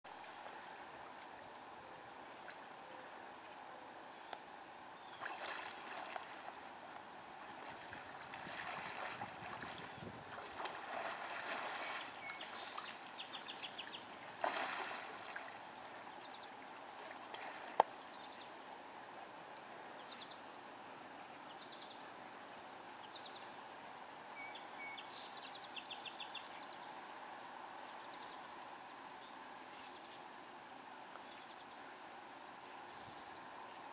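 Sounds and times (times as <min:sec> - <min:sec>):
insects chirring: 0:00.1 - 0:33.9
hippos splashing in water: 0:05.1 - 0:16.0, 0:16.8 - 0:17.9.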